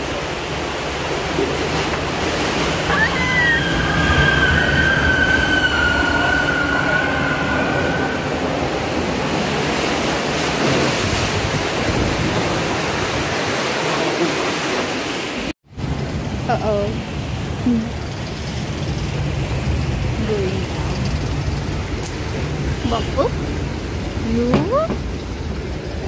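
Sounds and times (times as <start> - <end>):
water rushing: 0.0 - 26.0
high squeal: 2.9 - 8.8.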